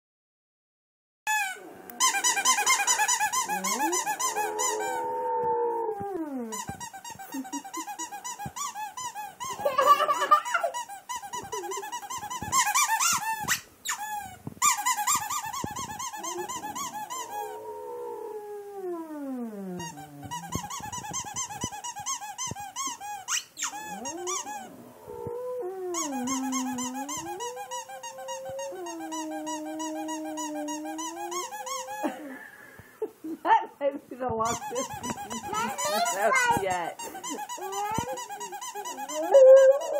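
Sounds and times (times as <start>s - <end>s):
squeaky toy squeaking: 1.3s - 4.8s, 6.5s - 17.5s, 19.8s - 24.7s, 26.0s - 32.0s, 34.4s - 39.9s
dog howling: 3.4s - 6.6s, 16.2s - 20.8s, 23.8s - 32.1s, 38.9s - 39.9s.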